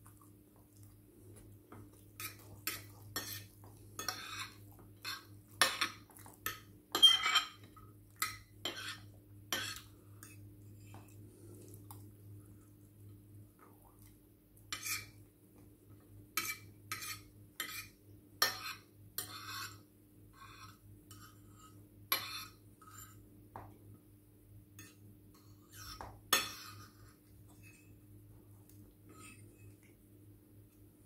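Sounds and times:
cutlery clinking on dishes: 2.2 - 10.4.

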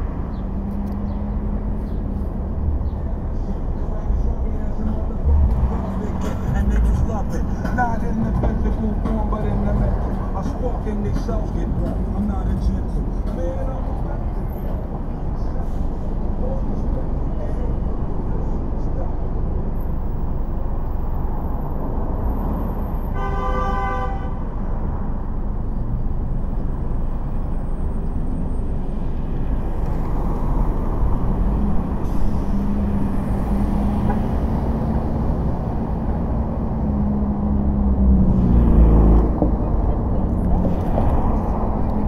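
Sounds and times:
road and traffic noise: 0.0 - 42.0
car horn honk: 23.1 - 24.4.

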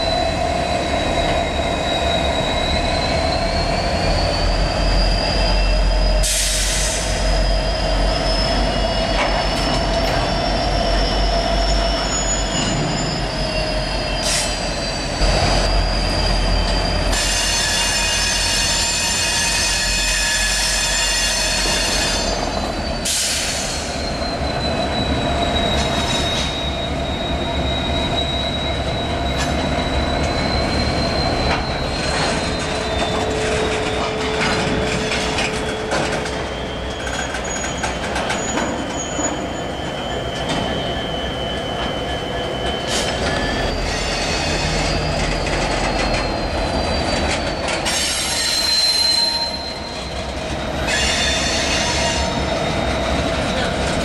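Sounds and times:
diesel locomotive rumble: 0.0 - 54.0
train wheels squealing on rails: 0.0 - 54.0.

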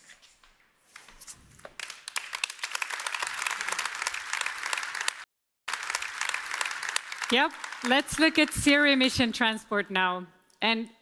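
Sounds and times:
audience applauding: 1.8 - 9.1.

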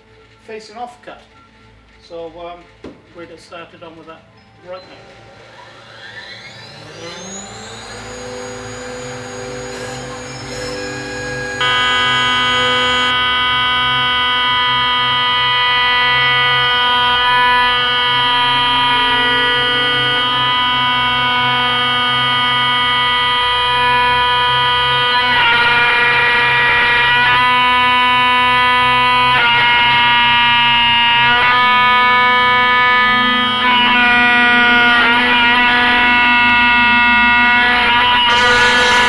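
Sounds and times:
router spindle whining: 4.9 - 39.0.

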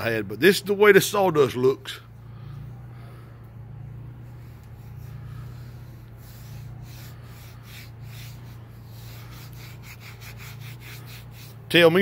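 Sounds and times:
steady low hum: 0.0 - 12.0
hand scraping sawdust on board: 4.3 - 12.0.

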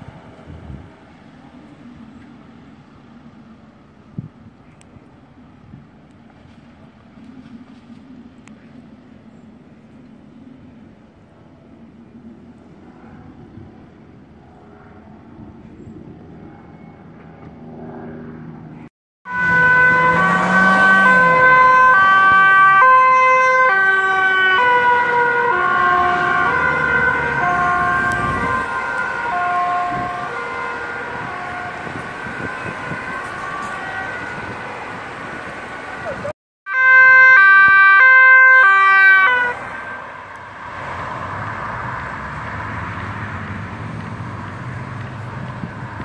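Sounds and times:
street noise: 0.0 - 46.0
ambulance two-tone siren: 19.2 - 40.6.

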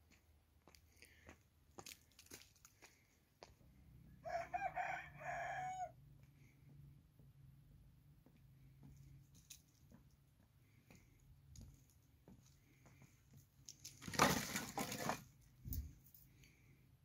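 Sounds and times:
firewood and twigs clattering: 13.6 - 16.3.

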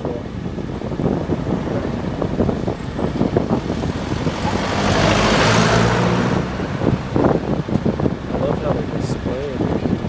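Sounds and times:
low engine hum: 0.0 - 10.0
vehicle passing close by: 1.1 - 8.5.

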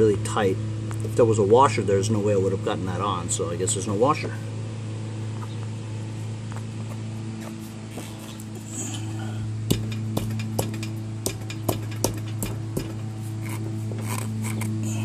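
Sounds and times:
steady low hum: 0.0 - 15.0
sharp metal clicks and taps: 9.7 - 13.0.

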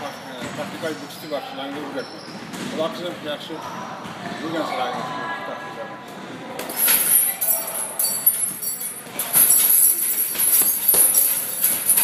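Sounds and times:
chain jingling and rattling: 6.7 - 12.0.

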